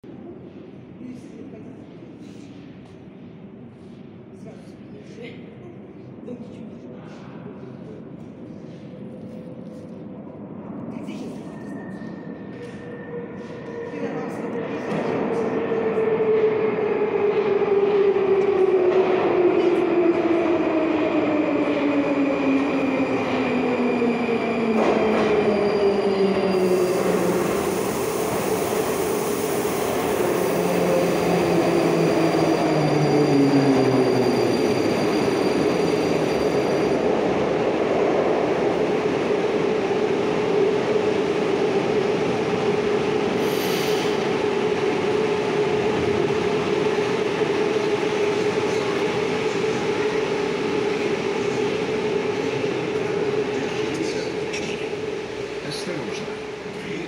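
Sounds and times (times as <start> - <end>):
brief air hiss: 43.5 - 44.2.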